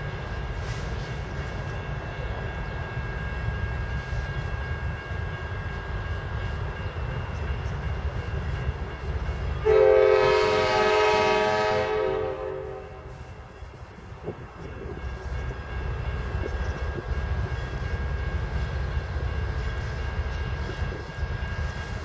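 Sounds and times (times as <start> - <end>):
train rumble: 0.0 - 22.0
locomotive air horn blast: 9.6 - 13.2.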